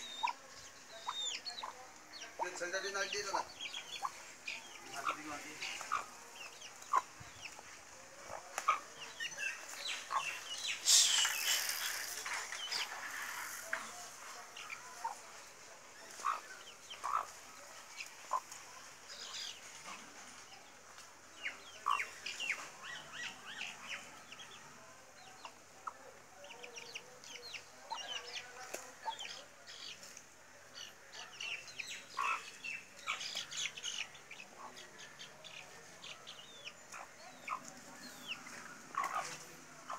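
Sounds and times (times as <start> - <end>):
chicks peeping: 0.0 - 14.0, 16.0 - 18.6, 21.3 - 24.5, 30.8 - 39.9
hen clucking: 10.1 - 11.6, 16.2 - 16.4, 17.0 - 17.3.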